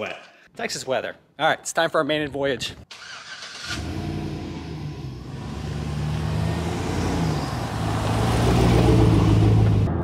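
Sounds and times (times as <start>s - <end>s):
pickup truck engine approaching: 4.2s - 10.0s.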